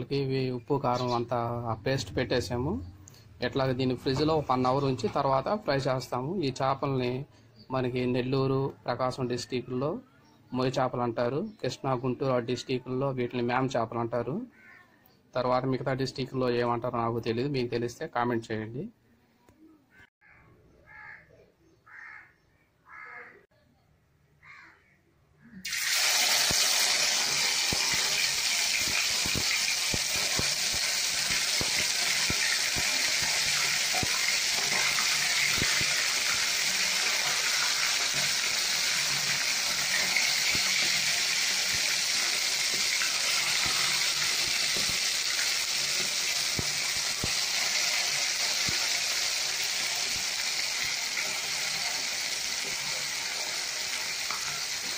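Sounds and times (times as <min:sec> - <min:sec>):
fish sizzling in hot oil: 0:25.6 - 0:54.9.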